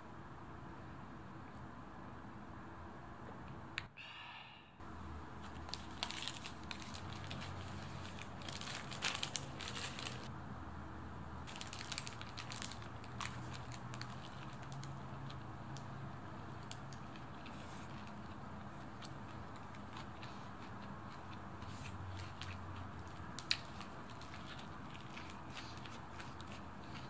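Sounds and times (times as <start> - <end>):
paper wrapper crinkling: 5.4 - 10.3, 11.5 - 15.1, 22.1 - 27.0.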